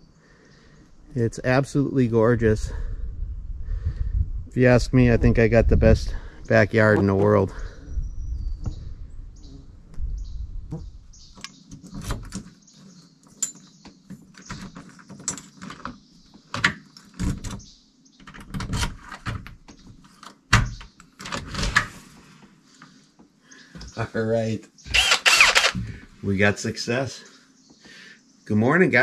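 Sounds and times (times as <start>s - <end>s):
door lock clicking and rattling: 14.2s - 21.8s.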